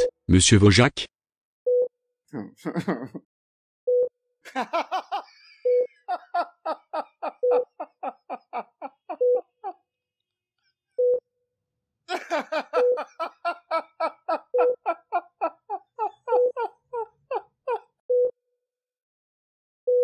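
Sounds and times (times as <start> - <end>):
man laughing: 2.4 - 3.3, 4.5 - 9.9, 12.1 - 18.0
patient monitor beeping: 5.6 - 7.9, 9.1 - 9.7, 12.6 - 15.2, 16.1 - 16.8.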